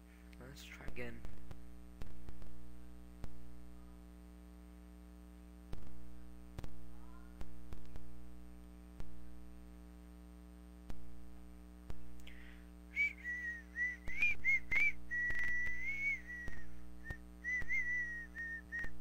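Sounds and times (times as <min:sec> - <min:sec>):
low electrical hum: 0:00.0 - 0:19.0
person whistling a tune: 0:13.0 - 0:19.0.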